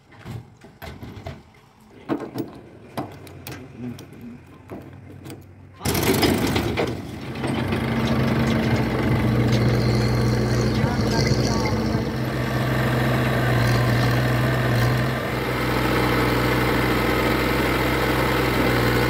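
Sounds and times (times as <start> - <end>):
tractor diesel engine running: 2.6 - 19.0.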